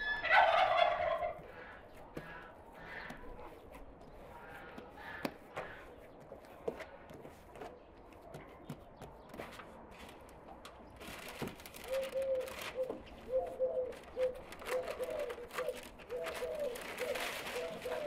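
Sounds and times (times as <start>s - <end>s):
bird calling: 0.0s - 6.2s, 11.8s - 18.0s
baking paper rustling: 1.4s - 18.0s.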